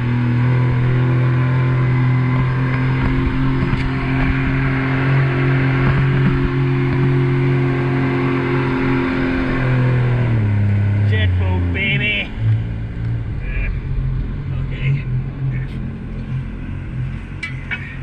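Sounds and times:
wind noise: 0.0 - 10.0
boat engine running hard: 0.0 - 18.0.

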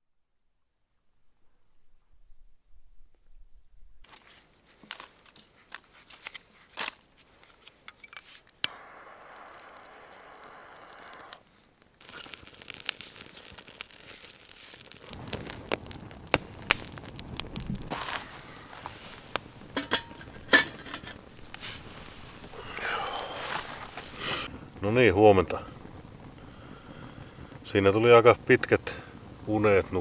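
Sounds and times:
crinkly rustling of gear: 4.0 - 8.6, 10.9 - 22.6, 23.3 - 24.3
steady hiss: 4.1 - 30.0.

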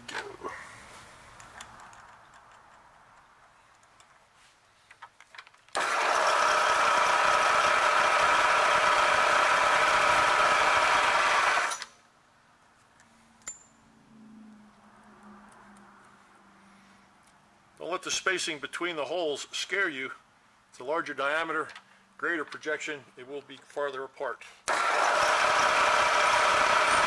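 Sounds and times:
drill whining cutting metal: 5.8 - 11.8, 24.7 - 27.0.

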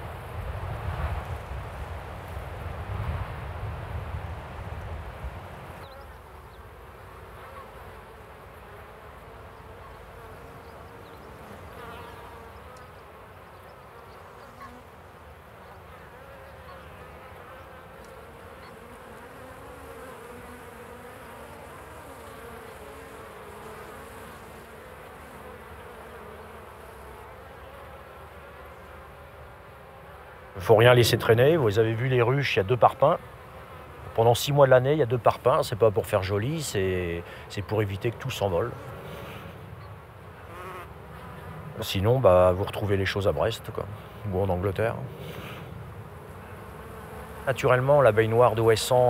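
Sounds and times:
bees buzzing: 0.0 - 49.0.

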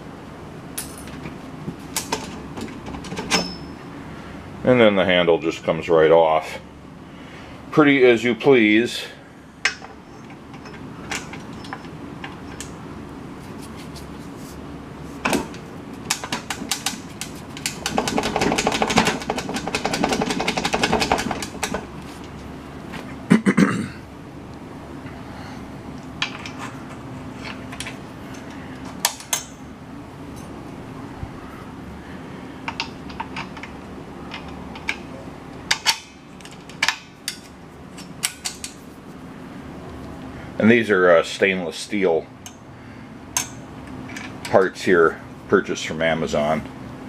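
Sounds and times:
steady low hum: 0.0 - 47.0
rapid clattering: 16.1 - 21.9.

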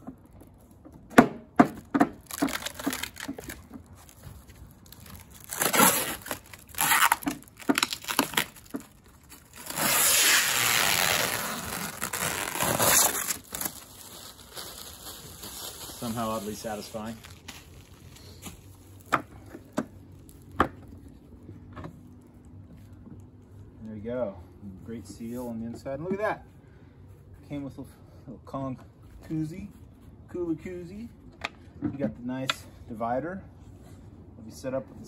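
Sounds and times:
plastic film ripping: 2.2 - 19.1
plastic wrapping crinkling: 2.2 - 20.6.

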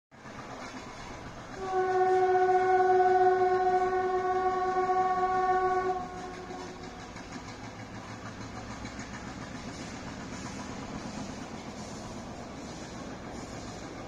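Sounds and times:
train horn blast: 1.5 - 7.0.

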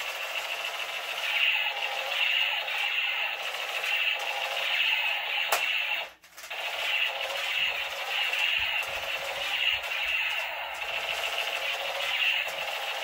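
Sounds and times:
toy gun pulsing electronic tone: 0.0 - 13.0.

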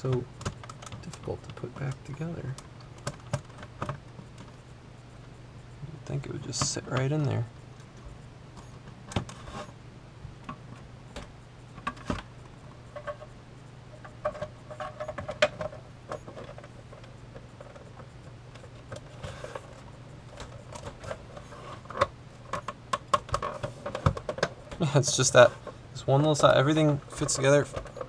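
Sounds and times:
faint low hum: 0.0 - 28.0.

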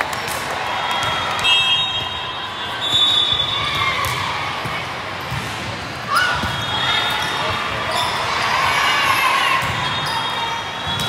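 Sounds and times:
crowd chatter: 0.0 - 11.0
ball bouncing on court floor: 3.6 - 7.4.

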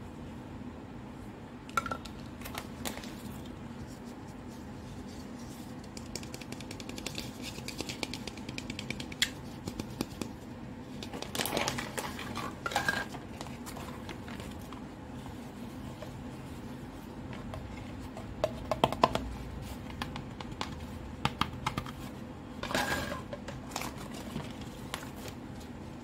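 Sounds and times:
plastic toy clicking and tapping: 6.0 - 10.3.

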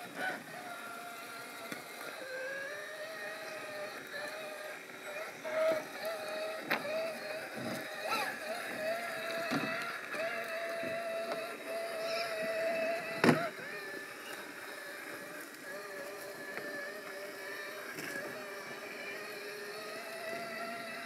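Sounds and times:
electric motor whining: 0.0 - 21.0.

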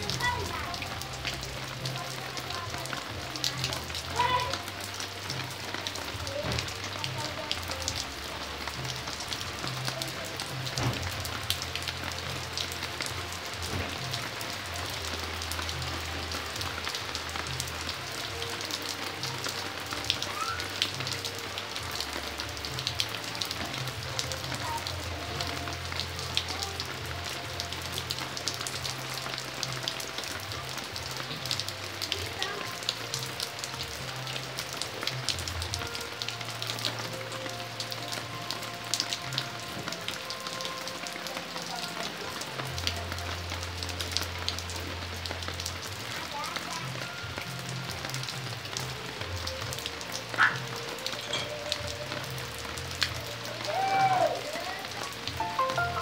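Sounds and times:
rain on paving and leaves: 0.0 - 56.0.

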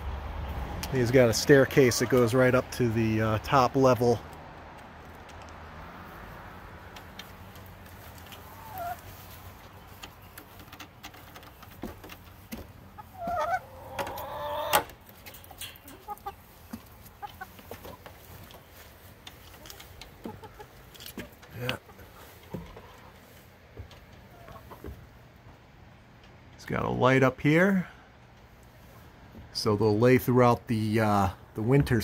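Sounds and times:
hens clucking: 0.9 - 4.2, 5.1 - 26.4
hens squawking: 7.0 - 23.4, 24.1 - 25.2.

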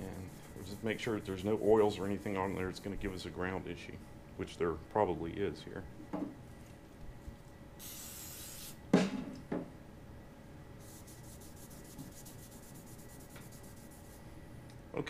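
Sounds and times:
aerosol spray hiss: 7.8 - 8.8
pad rubbing on steel bar: 10.9 - 14.1.

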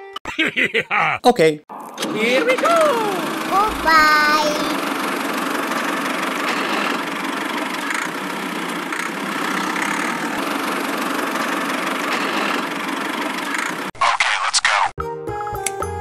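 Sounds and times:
toy tractor engine drone: 2.0 - 3.8, 4.8 - 13.9.

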